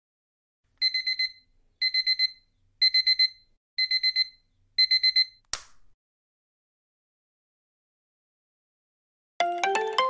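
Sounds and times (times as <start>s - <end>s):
digital alarm beeping: 0.8s - 5.4s.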